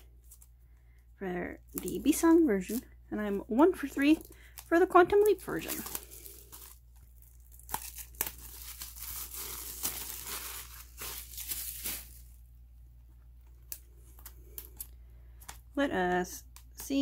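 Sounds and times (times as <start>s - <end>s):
plastic wrap crinkling and tearing: 1.6s - 12.5s, 13.4s - 15.8s.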